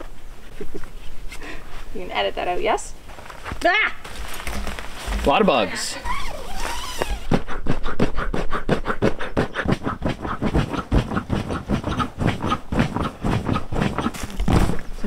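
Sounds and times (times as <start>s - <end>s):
person blowing breathy puffs: 6.0s - 14.8s.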